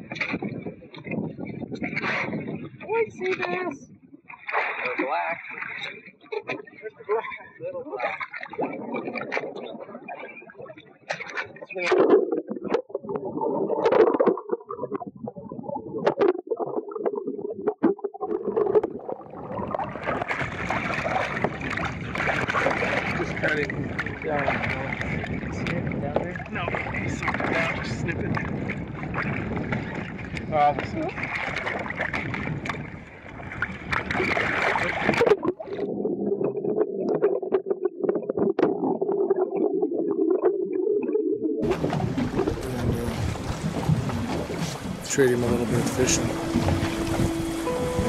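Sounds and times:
water splashing: 0:00.0 - 0:40.0, 0:41.6 - 0:48.0
muffled underwater gurgling: 0:00.0 - 0:48.0
underwater knocks: 0:08.0 - 0:40.4, 0:41.6 - 0:48.0
bubbly clicks and pops: 0:08.2 - 0:23.0, 0:33.9 - 0:42.9
wind: 0:19.2 - 0:35.9, 0:41.6 - 0:48.0.

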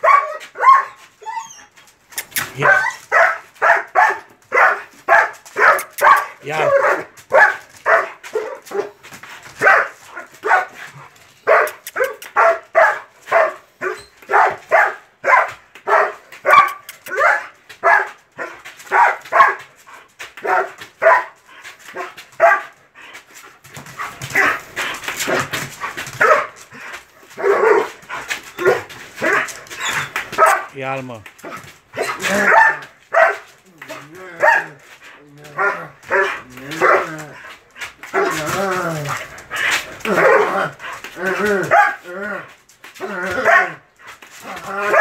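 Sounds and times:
dog barking aggressively: 0:00.0 - 0:01.0, 0:02.4 - 0:19.7, 0:20.4 - 0:22.8, 0:23.8 - 0:30.8, 0:31.4 - 0:34.8, 0:35.5 - 0:37.4, 0:38.0 - 0:38.6, 0:39.8 - 0:42.0, 0:43.3 - 0:43.8, 0:44.6 - 0:45.0.

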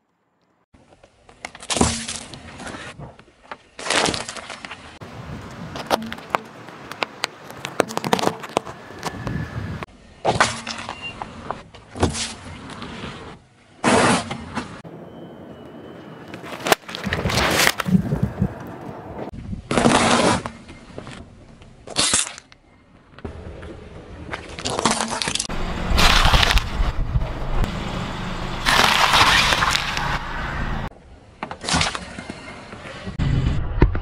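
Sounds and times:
objects crushed under car tyre: 0:07.5 - 0:08.7, 0:24.4 - 0:26.8, 0:28.6 - 0:30.2
rolling car rumble: 0:17.8 - 0:19.7, 0:25.3 - 0:31.4.

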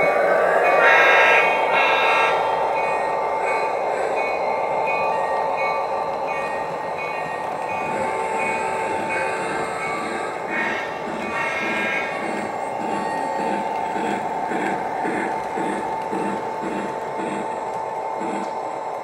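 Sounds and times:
model train rumbling on track: 0:00.0 - 0:19.0
train horn: 0:00.8 - 0:02.6, 0:07.9 - 0:12.5.

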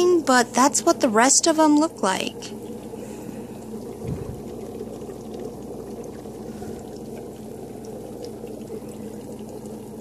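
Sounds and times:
aquarium filter humming: 0:00.0 - 0:10.0
water flowing: 0:00.0 - 0:10.0
low bump: 0:04.0 - 0:04.4.

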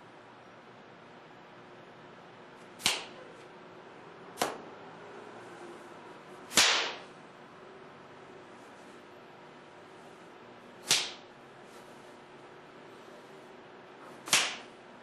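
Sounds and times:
sharp hand slaps: 0:02.8 - 0:03.2, 0:04.4 - 0:04.6, 0:06.5 - 0:07.1, 0:10.8 - 0:11.3, 0:14.2 - 0:14.7.

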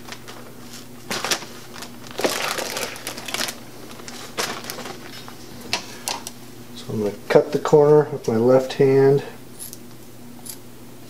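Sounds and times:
plastic bag crinkling: 0:00.0 - 0:06.3.

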